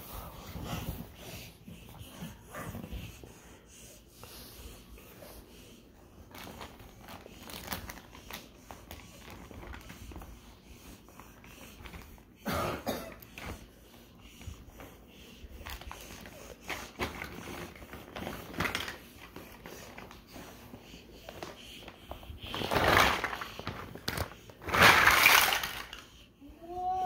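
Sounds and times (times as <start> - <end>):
plastic bag crinkling: 6.3 - 8.5
plastic blocks rattling: 24.2 - 26.1.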